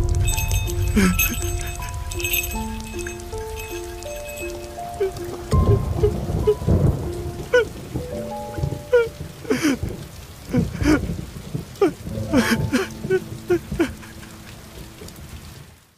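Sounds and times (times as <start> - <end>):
soft sustained music: 0.0 - 10.1, 12.0 - 15.8
steady rain: 0.0 - 15.9
man sobbing: 0.5 - 3.0, 4.3 - 6.8, 7.5 - 7.8, 8.8 - 11.2, 11.8 - 14.6.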